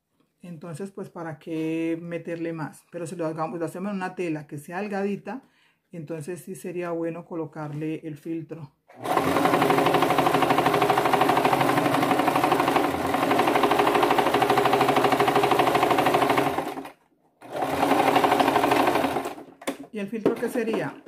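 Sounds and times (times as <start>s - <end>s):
sewing machine stitching: 8.9s - 19.8s.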